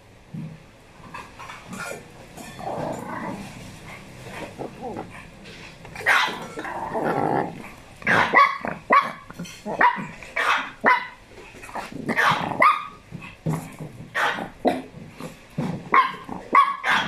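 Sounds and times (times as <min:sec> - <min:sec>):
dog growling: 0:01.7 - 0:10.2, 0:11.4 - 0:16.6
small dogs barking: 0:06.0 - 0:06.7, 0:08.0 - 0:11.2, 0:12.0 - 0:13.0, 0:14.1 - 0:14.8, 0:15.9 - 0:17.0.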